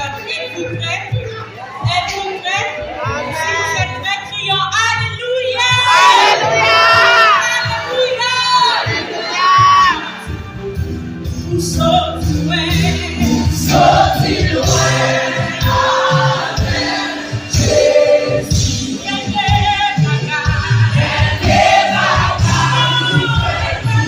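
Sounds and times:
backing singers: 0:05.6 - 0:10.6, 0:12.4 - 0:24.0
band with electric bass: 0:09.6 - 0:24.0
woman singing: 0:11.6 - 0:15.7, 0:16.6 - 0:24.0.

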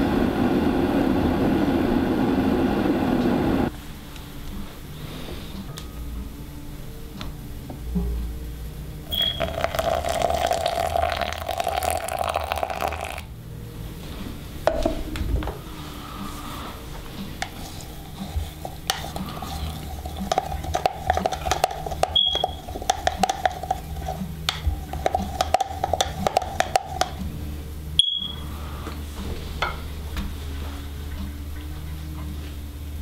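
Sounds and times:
stirrer clicking against plastic: 0:18.8 - 0:27.2.

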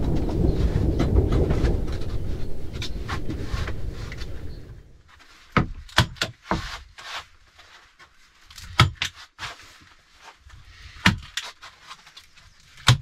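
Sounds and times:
foam mats rustling on wood: 0:00.0 - 0:13.0
sharp handling clicks and knocks: 0:11.0 - 0:13.0.

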